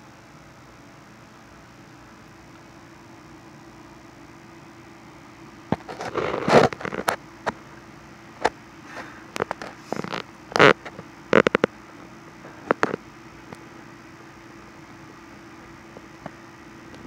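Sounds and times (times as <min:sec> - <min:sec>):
scrapes rustles and clicks: 0:05.7 - 0:07.6, 0:08.4 - 0:11.7.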